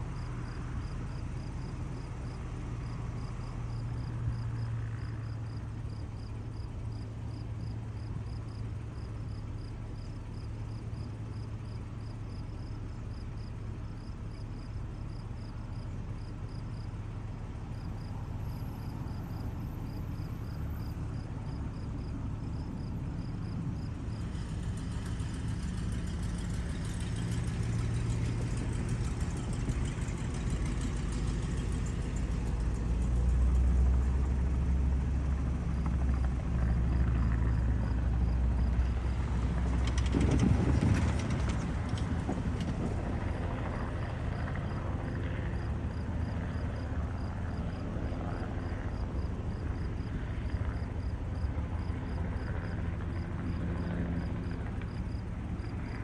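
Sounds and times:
distant helicopter: 0.0s - 56.0s
car engine passing close: 15.7s - 56.0s.

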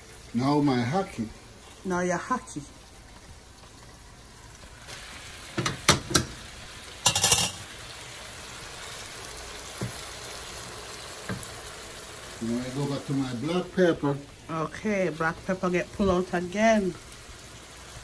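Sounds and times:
food sizzling in a frying pan: 0.0s - 18.0s
knocks and clatters in pan: 5.5s - 6.4s, 7.0s - 7.7s.

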